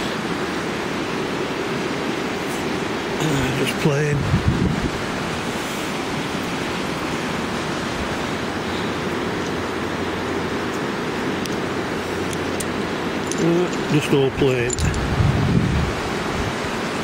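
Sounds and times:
flowing river water: 0:00.0 - 0:17.0.

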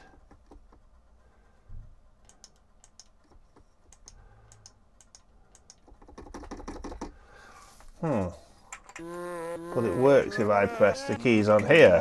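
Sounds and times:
plastic keyboard keys clicking: 0:05.0 - 0:07.1.

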